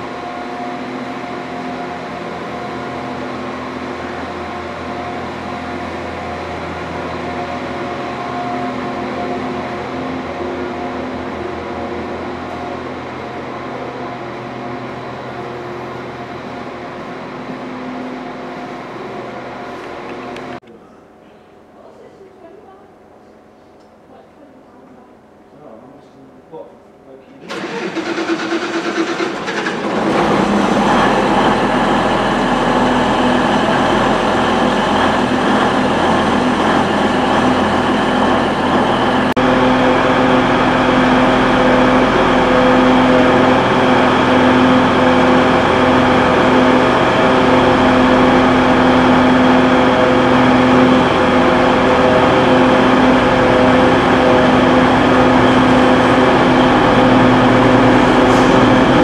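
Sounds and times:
train engine droning: 0.0 - 20.7, 27.4 - 59.0
train wheels rolling: 27.5 - 59.0.

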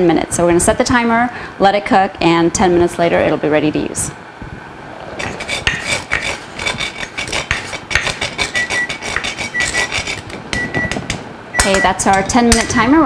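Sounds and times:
nutmeg scraping on grater: 5.2 - 11.0
kitchen timer beeping: 8.6 - 9.8, 10.5 - 12.8.

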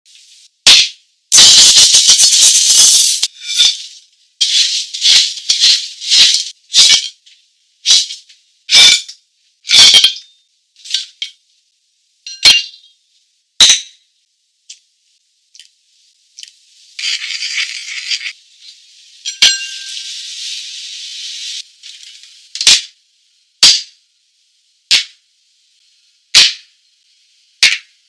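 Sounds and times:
salt poured into clay pot: 1.3 - 7.2.

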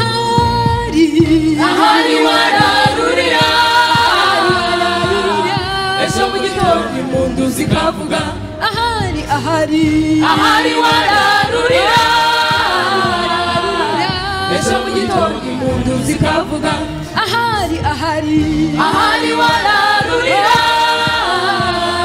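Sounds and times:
gospel choir singing: 0.0 - 22.0
steady beat: 0.3 - 22.0.

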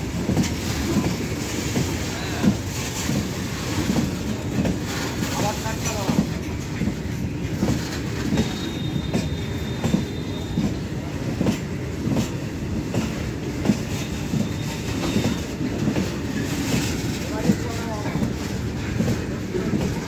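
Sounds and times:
high wheel squeal: 8.4 - 10.8.

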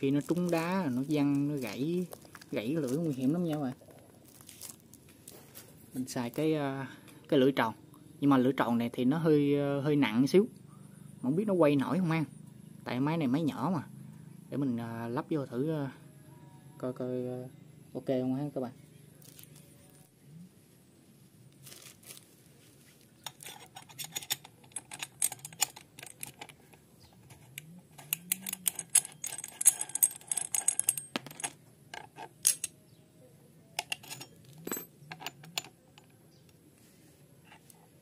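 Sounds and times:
small metal parts clinking: 0.0 - 4.9, 23.2 - 32.8, 33.8 - 36.2.

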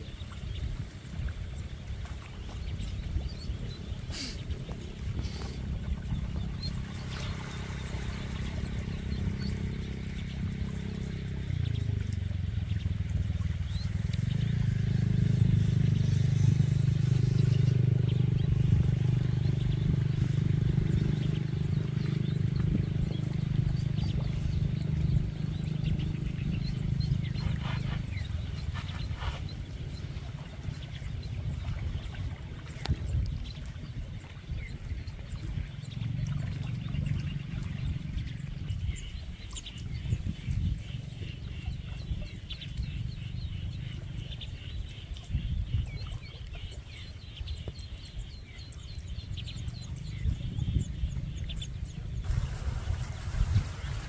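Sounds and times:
small engine running: 6.8 - 29.4, 52.2 - 54.0.

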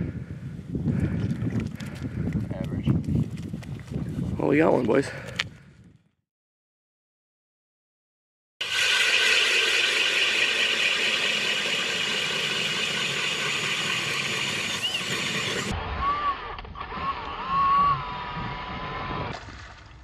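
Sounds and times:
drill auger boring through ice: 8.6 - 19.5.

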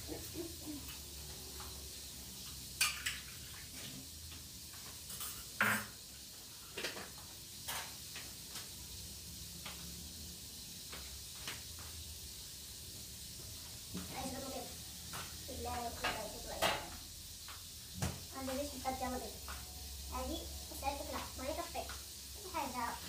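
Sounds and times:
dishes and utensils clinking: 2.5 - 3.6, 5.0 - 6.0.

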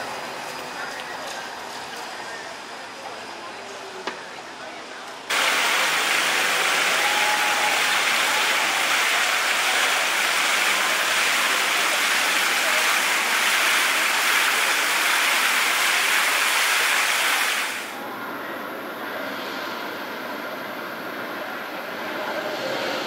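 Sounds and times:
steady rushing hiss: 5.3 - 18.0.

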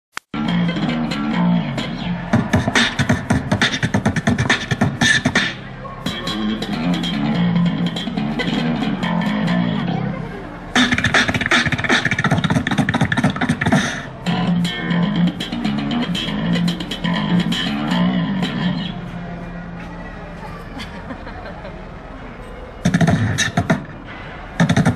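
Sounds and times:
beatboxing: 0.3 - 19.2, 22.8 - 24.0, 24.6 - 24.9
electric bass riff: 0.4 - 19.1.

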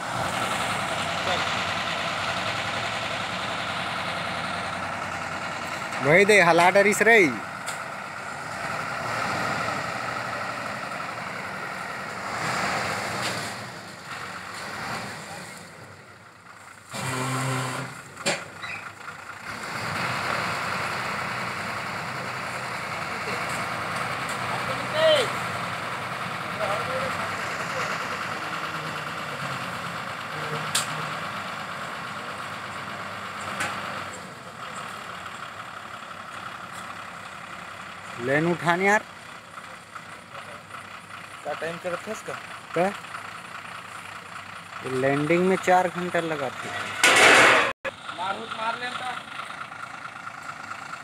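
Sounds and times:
drilling rig diesel engine running: 0.0 - 51.0.

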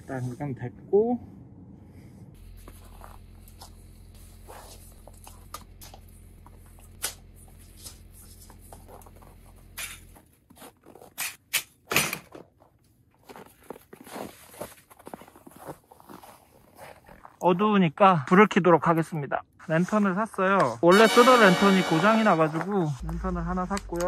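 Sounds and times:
steady low hum: 21.4 - 24.0.

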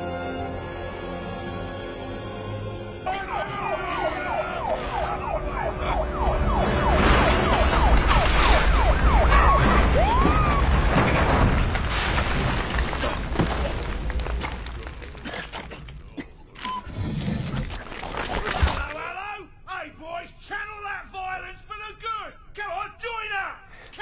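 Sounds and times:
falling siren-like whoops: 3.2 - 10.8.

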